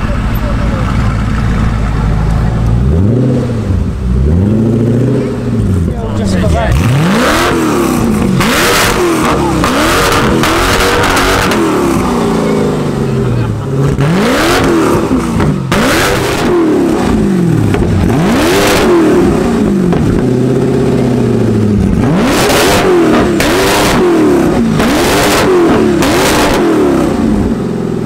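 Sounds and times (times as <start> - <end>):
car engine revving: 0.0 - 28.0.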